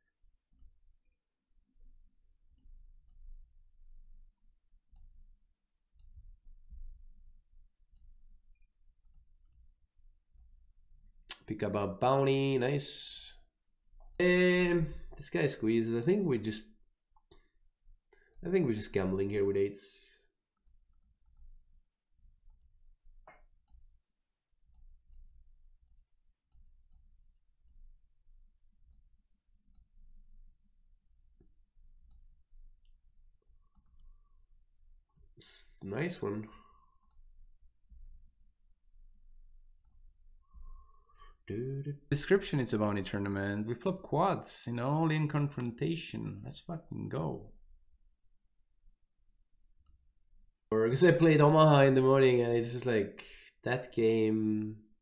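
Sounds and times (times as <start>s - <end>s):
faint clicks: 24.6s - 27.9s, 31.4s - 32.2s, 32.8s - 34.3s, 35.0s - 37.3s, 37.9s - 38.2s, 39.8s - 41.4s, 49.8s - 50.0s.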